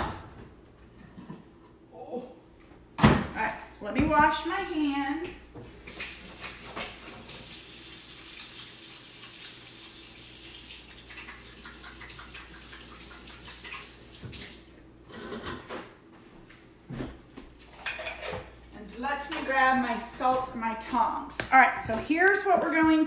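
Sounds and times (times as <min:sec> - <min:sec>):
faucet running: 0:05.6 - 0:14.7.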